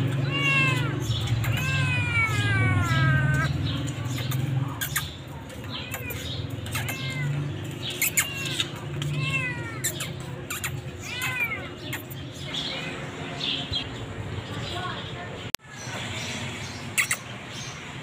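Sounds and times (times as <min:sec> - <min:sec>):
kitten meowing: 0:00.1 - 0:03.6, 0:05.7 - 0:13.0.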